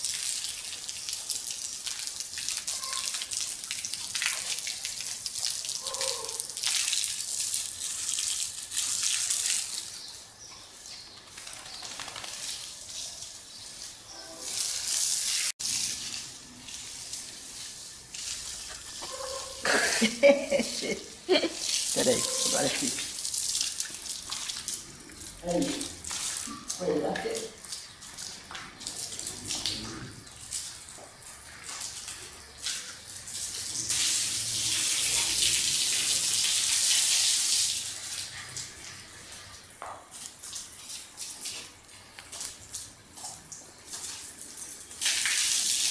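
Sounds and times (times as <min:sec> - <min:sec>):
dog snapping and splashing: 0:00.0 - 0:10.0, 0:11.2 - 0:13.4, 0:21.6 - 0:34.3
garden hose spraying water: 0:00.0 - 0:45.9.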